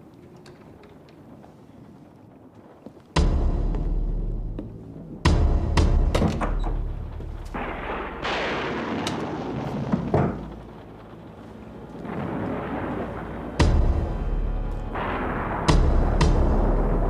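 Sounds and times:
rumbling suspense sound effects: 3.2s - 17.0s
loud boom: 6.8s - 11.0s, 12.0s - 17.0s.

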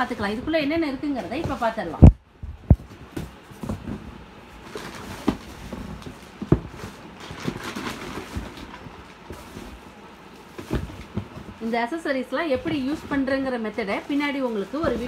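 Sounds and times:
plastic wrapping crinkling: 4.5s - 15.0s.

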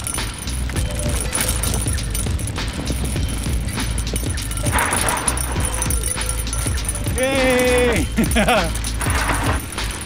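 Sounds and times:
wind rumbling on microphone: 0.0s - 7.2s
tyres crunching over dirt: 0.0s - 10.0s.

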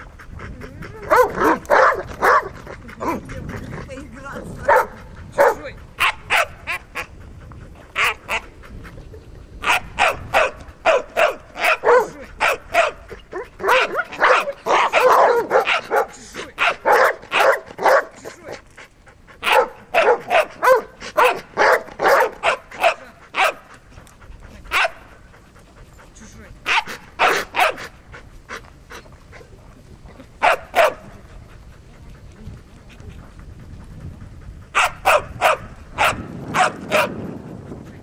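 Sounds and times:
dog barking: 1.1s - 3.2s, 4.7s - 6.6s, 9.6s - 18.2s, 19.4s - 23.6s, 24.7s - 25.0s, 26.7s - 27.9s, 30.4s - 31.1s, 34.8s - 37.2s.

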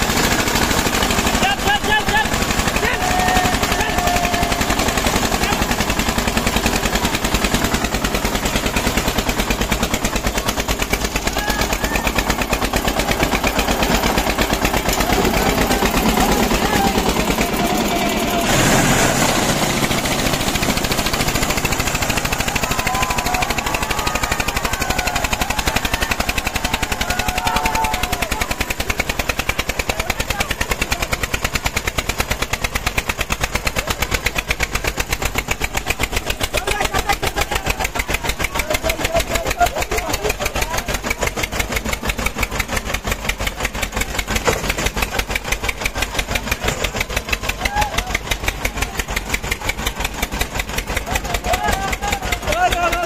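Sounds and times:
diesel tractor engines chugging: 0.0s - 53.0s.

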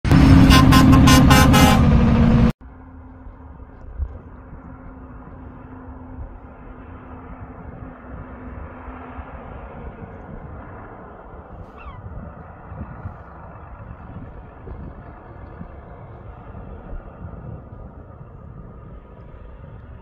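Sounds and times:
distant highway truck rumble: 0.0s - 20.0s
air horn blast: 0.1s - 2.5s
wind on microphone: 3.2s - 20.0s.

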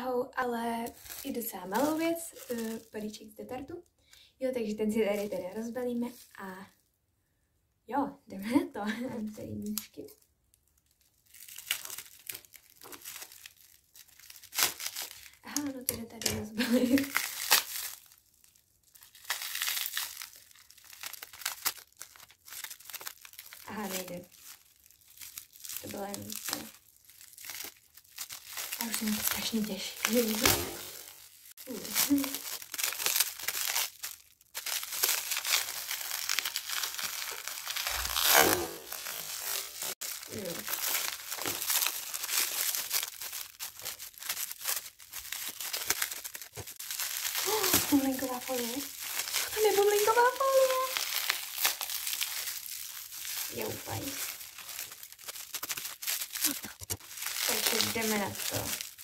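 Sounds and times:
packaging crinkling and rustling: 0.8s - 3.8s, 9.5s - 59.0s.

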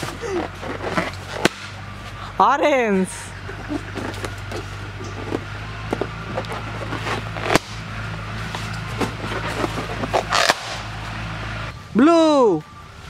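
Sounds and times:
low hum: 0.0s - 13.0s
balloons clicking and squeaking: 8.4s - 10.9s
balloon snapping: 10.2s - 10.8s.

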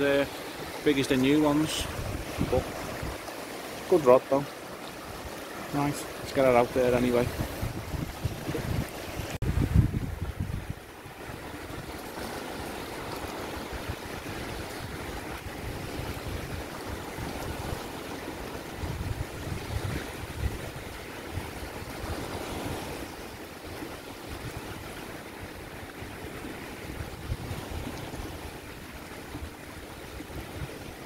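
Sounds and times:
small waves breaking on shore: 0.0s - 31.0s
wind on microphone: 1.0s - 3.3s, 5.0s - 31.0s.

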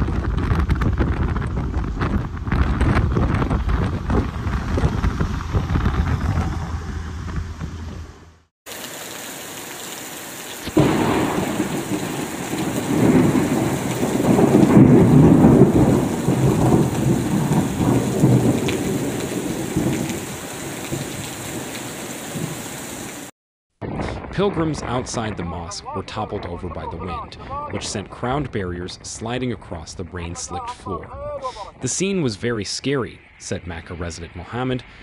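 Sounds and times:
thunder peal: 0.0s - 8.4s, 10.7s - 21.6s, 23.8s - 28.6s
wind buffeting microphone: 0.0s - 8.4s
heavy rain: 8.7s - 23.3s.

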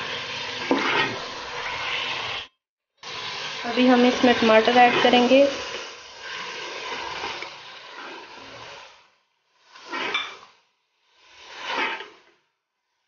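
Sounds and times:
spatula scraping a pot: 0.0s - 2.4s, 4.1s - 9.1s, 9.7s - 10.6s, 11.2s - 12.4s
meat sizzling in a pot: 0.0s - 13.0s.

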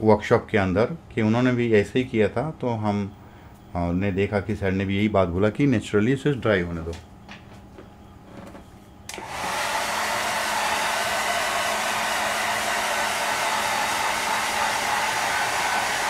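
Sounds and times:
hair dryer switch click: 9.1s - 9.5s
hair dryer blowing: 9.1s - 16.0s.

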